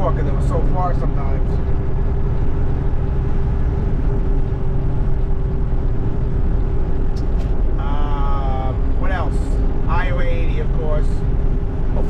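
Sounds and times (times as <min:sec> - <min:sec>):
vehicle engine and road rumble: 0:00.0 - 0:12.0.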